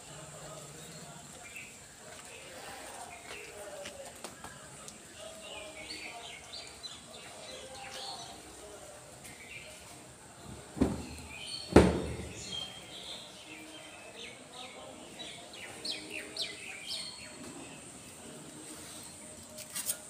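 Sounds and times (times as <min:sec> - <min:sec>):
birds chirping: 0:04.6 - 0:19.5
loud thump: 0:11.7 - 0:12.4.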